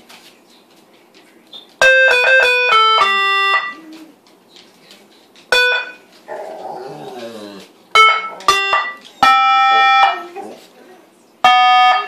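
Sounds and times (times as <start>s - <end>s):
electronic beeping notes: 1.8s - 3.8s, 5.5s - 6.0s, 8.0s - 10.2s.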